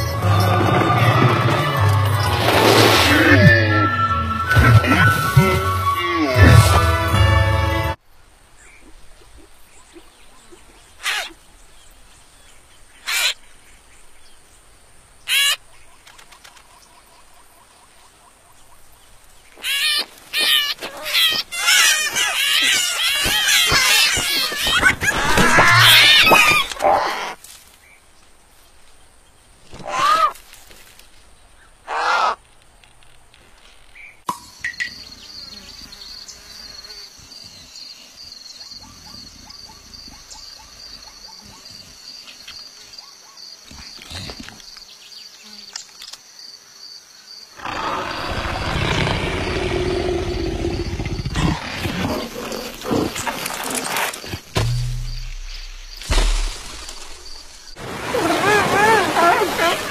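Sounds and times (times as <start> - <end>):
cartoon nestlings squealing: 13.1 - 13.4, 19.6 - 27.4
leopard growl: 47.6 - 53.7.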